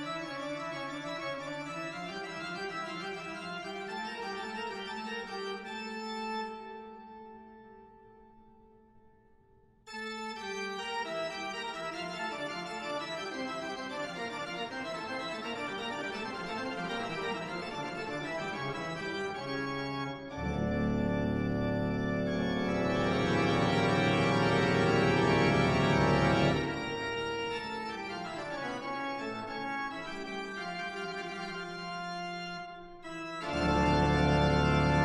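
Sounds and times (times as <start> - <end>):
organ chords: 0.0 - 7.8, 9.9 - 35.0.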